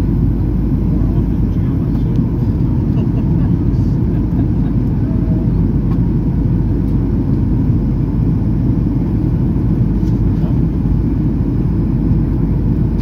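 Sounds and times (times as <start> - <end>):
jet engines low rumble: 0.0 - 13.0.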